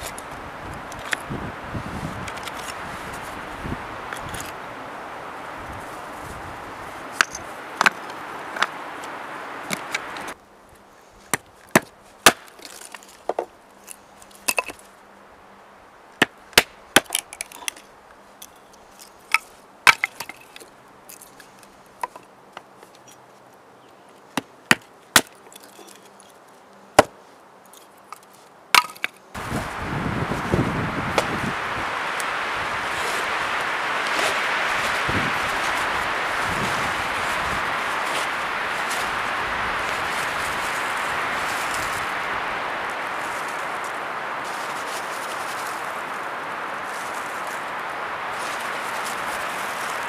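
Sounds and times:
hatchet chopping wood: 11.3s - 12.6s, 16.2s - 17.3s, 19.9s - 20.4s, 24.4s - 25.4s, 27.0s - 27.2s, 28.8s - 29.1s
stones clacking together: 11.7s - 14.8s, 27.8s - 29.2s.

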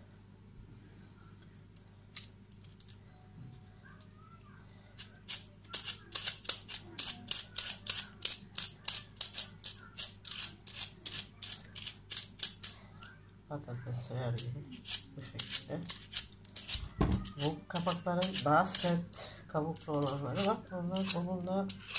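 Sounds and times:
peeler scraping pumpkin rind: 5.3s - 12.8s, 14.7s - 21.9s.

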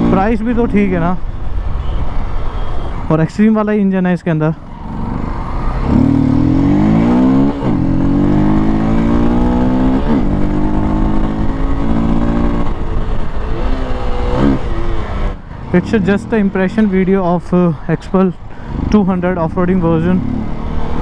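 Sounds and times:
motorcycle engine accelerating: 4.8s - 16.9s, 18.6s - 21.0s.

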